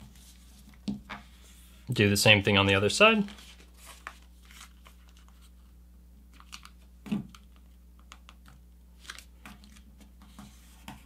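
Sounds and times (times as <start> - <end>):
paper being folded: 3.2 - 5.7, 9.0 - 9.8.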